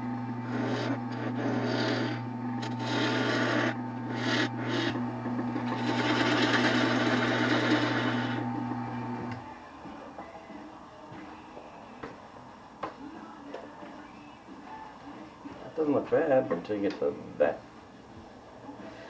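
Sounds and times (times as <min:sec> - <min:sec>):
tool scraping spinning wood: 0:00.0 - 0:09.4
wood lathe motor hum: 0:00.0 - 0:09.4.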